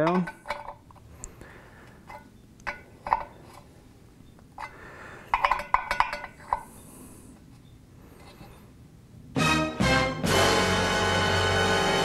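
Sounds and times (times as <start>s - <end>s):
metal wrench clinking on nut: 5.3s - 6.7s.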